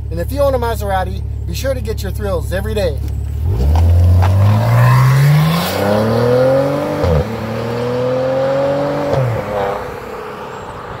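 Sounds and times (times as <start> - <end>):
car engine accelerating hard: 3.2 - 11.0.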